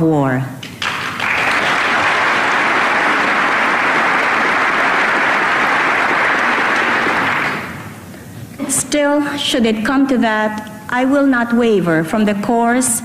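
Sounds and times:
large audience applauding: 0:00.7 - 0:08.0.

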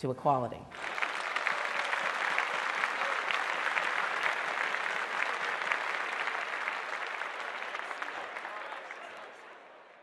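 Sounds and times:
audience applauding: 0:00.7 - 0:10.0.

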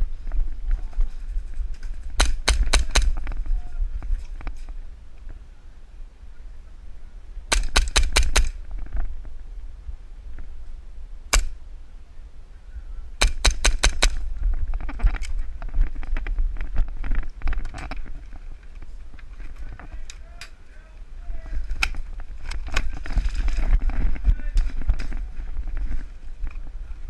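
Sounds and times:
airsoft guns firing: 0:02.2 - 0:03.2, 0:07.5 - 0:08.6, 0:11.3 - 0:11.6, 0:13.2 - 0:14.2.

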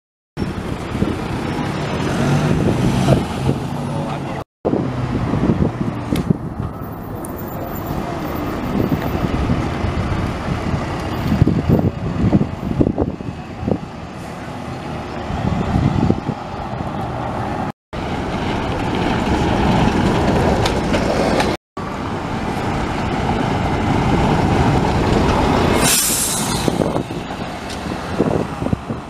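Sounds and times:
bus engine pulling away: 0:00.4 - 0:29.0
bus passing close by: 0:00.4 - 0:29.0
loud burst of hiss: 0:25.7 - 0:26.9.

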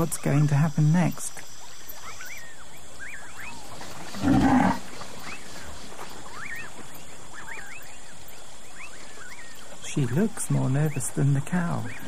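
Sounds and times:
jaguar growl: 0:04.1 - 0:04.9.

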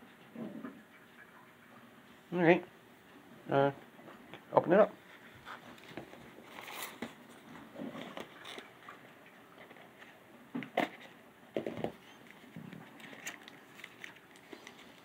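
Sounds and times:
cardboard box rustling: 0:05.4 - 0:08.6.

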